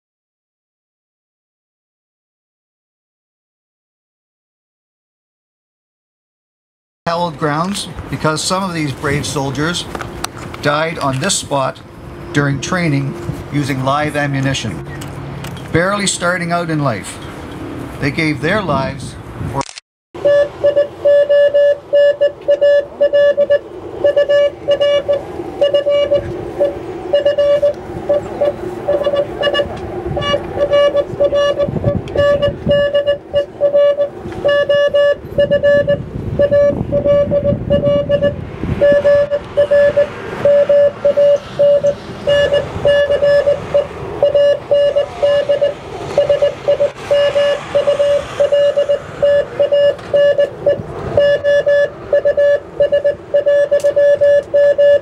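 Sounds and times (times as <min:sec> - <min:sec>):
morse code beeps: 0:20.2 - 0:55.0.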